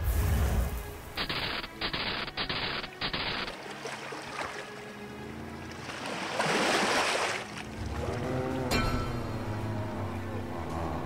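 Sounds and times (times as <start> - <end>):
short cartoon hissing bursts: 1.1 - 3.5.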